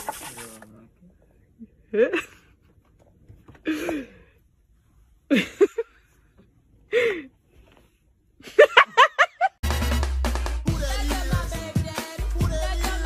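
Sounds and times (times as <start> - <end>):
person laughing: 5.3 - 6.0
upbeat background music: 9.6 - 13.0.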